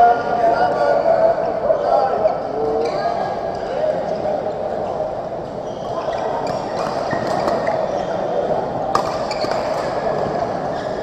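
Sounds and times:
crowd chatter: 0.0s - 11.0s
shoes squeaking on court floor: 4.8s - 11.0s
rackets hitting shuttlecocks: 8.9s - 10.4s.

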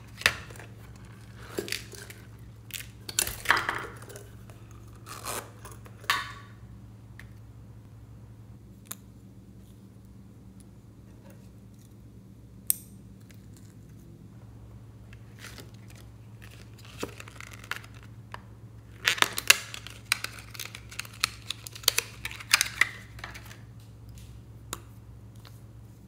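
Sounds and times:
plastic wrapping crinkling: 0.0s - 5.8s, 15.2s - 18.1s, 19.0s - 23.6s
faint steady hum: 0.0s - 26.0s.

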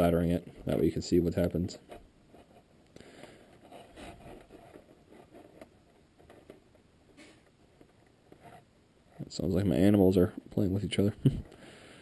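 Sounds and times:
faint rustling: 1.4s - 10.4s.

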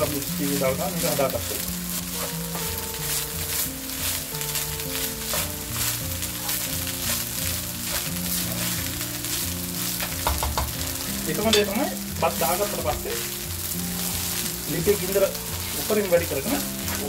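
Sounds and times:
spatula scraping pan: 0.0s - 10.5s, 11.3s - 17.0s
rice rustling: 0.0s - 17.0s
rice sizzling in oil: 0.0s - 17.0s.

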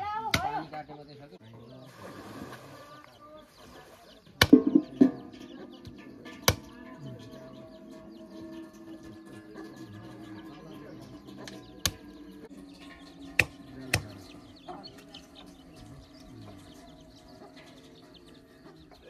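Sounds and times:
knife chopping meat on wood: 13.4s - 14.0s.

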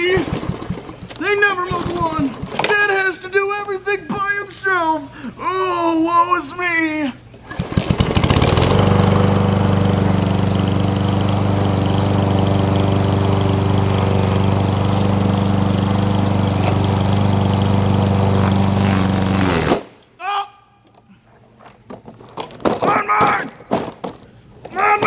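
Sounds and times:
lawn mower running: 0.0s - 2.7s, 7.4s - 19.8s.

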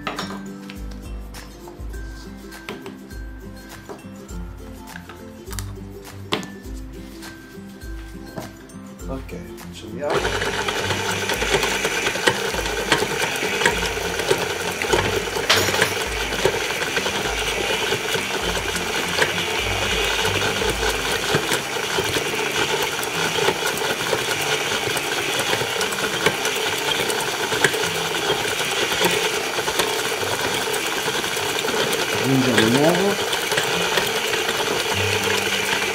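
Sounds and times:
stand mixer running: 10.1s - 35.9s.

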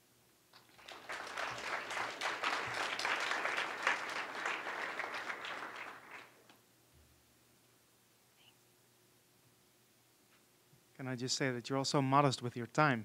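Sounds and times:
audience applauding: 0.6s - 6.5s.

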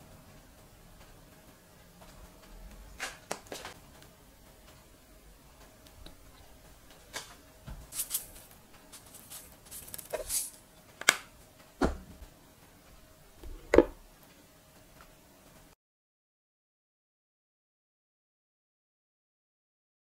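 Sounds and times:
seeds sprinkling rustle: 7.9s - 10.6s.

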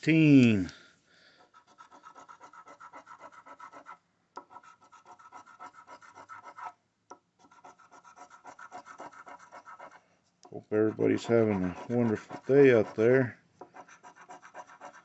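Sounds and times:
coin scratching lottery ticket: 1.5s - 6.7s, 7.4s - 10.0s, 10.8s - 13.2s, 13.8s - 15.0s.

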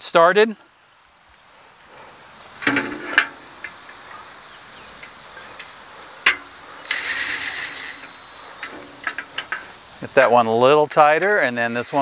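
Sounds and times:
drill and screw clicking on metal: 6.8s - 8.5s.

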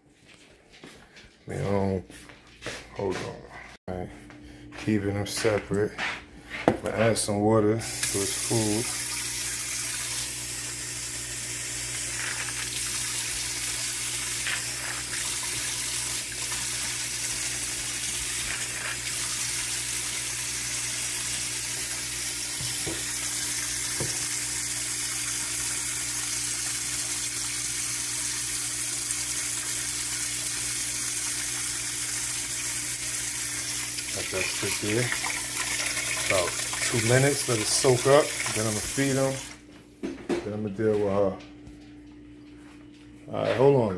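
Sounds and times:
tap water running into bowl: 11.8s - 39.6s.

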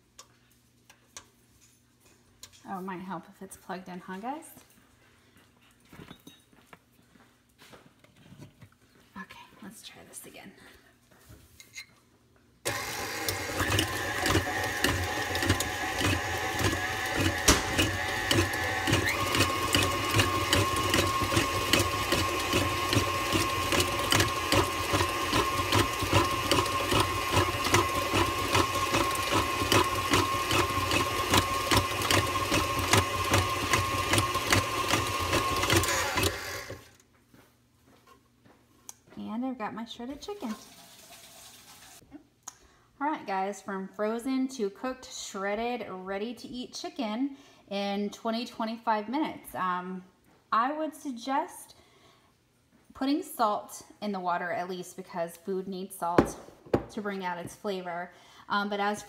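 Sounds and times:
mixer beater clattering: 12.7s - 36.9s
stand mixer motor whine: 12.7s - 36.9s.

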